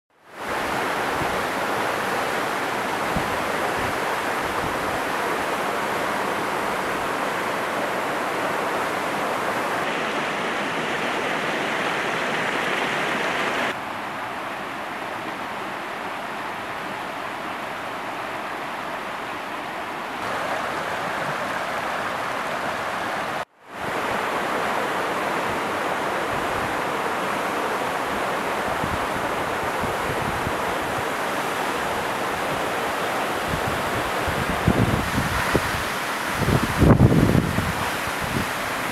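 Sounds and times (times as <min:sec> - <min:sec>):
waterfall roaring: 0:00.2 - 0:38.9
stream running over stones: 0:00.4 - 0:13.8, 0:20.2 - 0:38.9.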